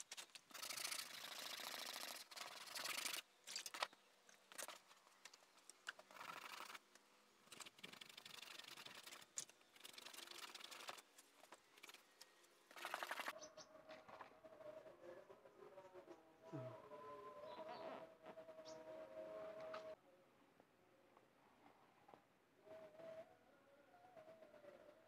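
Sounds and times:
sandpaper rubbing on plastic: 0.0 - 3.2, 7.5 - 11.1, 12.7 - 13.3.

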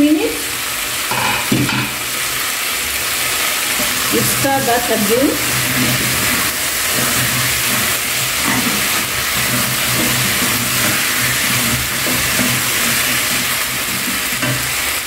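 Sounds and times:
potatoes sizzling in oil: 0.0 - 15.0
wooden spoon stirring: 3.7 - 15.0.

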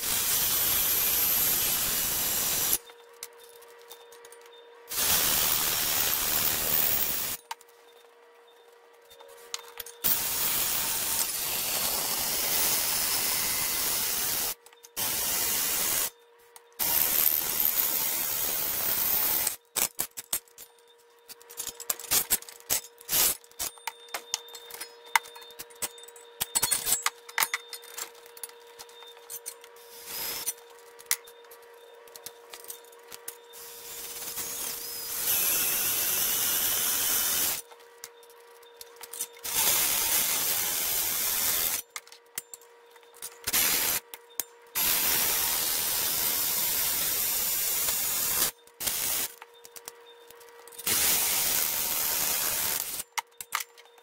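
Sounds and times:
cordless drill boring into steel: 0.0 - 2.8, 33.6 - 37.6, 39.4 - 41.8.

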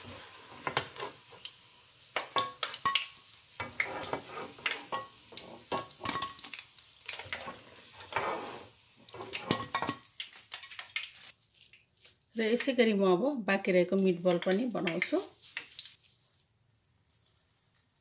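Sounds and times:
spatula scraping a pan: 0.0 - 1.4, 3.6 - 6.2, 7.2 - 9.9
meatballs sizzling in oil: 0.0 - 11.6, 13.9 - 18.0.

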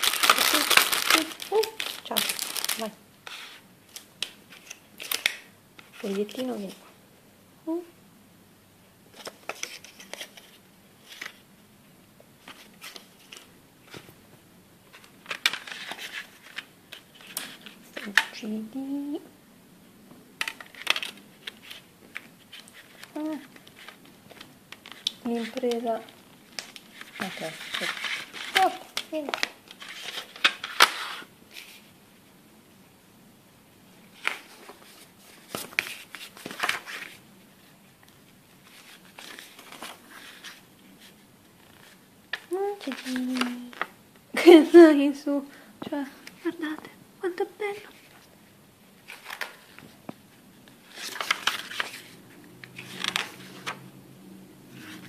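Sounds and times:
paper insert rustling: 0.0 - 6.8, 9.1 - 11.4, 14.9 - 18.4, 20.4 - 31.9, 34.1 - 43.9, 49.0 - 50.0, 50.7 - 54.0, 54.7 - 55.0.

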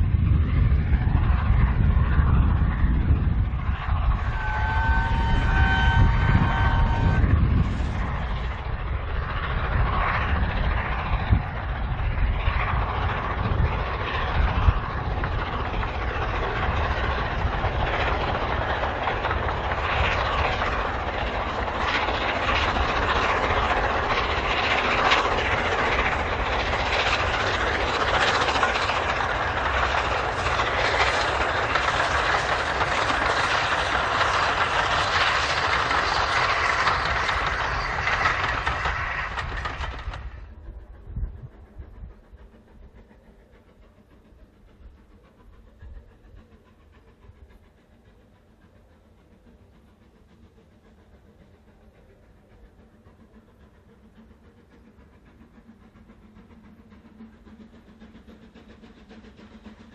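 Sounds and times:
wheels running on rail: 0.0 - 59.9
locomotive exhaust beats: 0.1 - 59.9
steam locomotive whistle: 4.1 - 8.0.

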